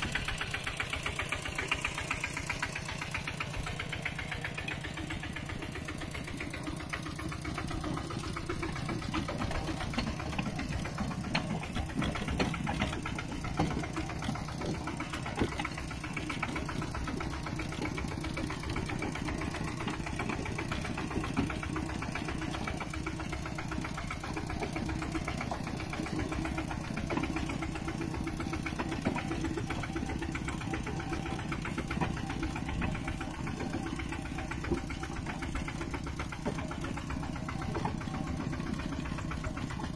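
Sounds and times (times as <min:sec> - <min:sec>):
knocks and clatters: 0:00.0 - 0:39.9
small tractor engine running: 0:00.0 - 0:39.9.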